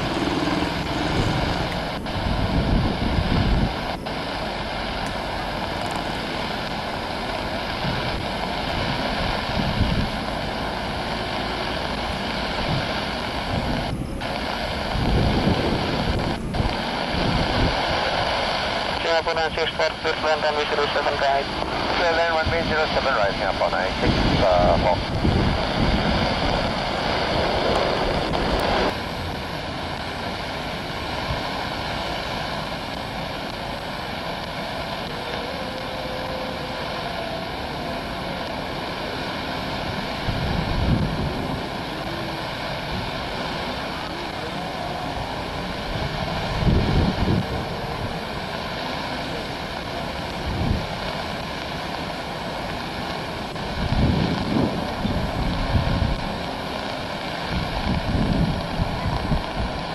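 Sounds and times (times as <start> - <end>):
wind buffeting microphone: 0.0 - 6.0, 6.7 - 11.0, 11.8 - 19.0, 21.5 - 30.1, 39.8 - 48.7, 49.4 - 51.7, 52.7 - 59.9
jet engines running loud: 0.0 - 59.9
jet hiss with whining tones: 0.0 - 59.9.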